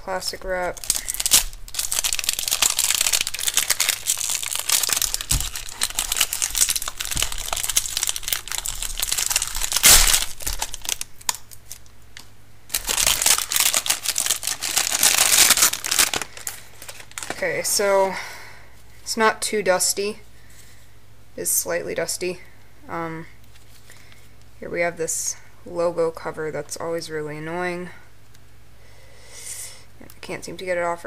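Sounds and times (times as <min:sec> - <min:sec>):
plastic wrap crinkling: 0:00.1 - 0:17.7.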